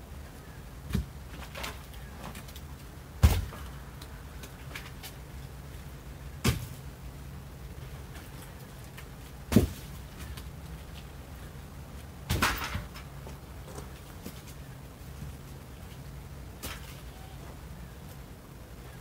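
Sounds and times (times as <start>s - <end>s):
firewood clunking: 8.1s - 11.1s, 12.2s - 14.6s.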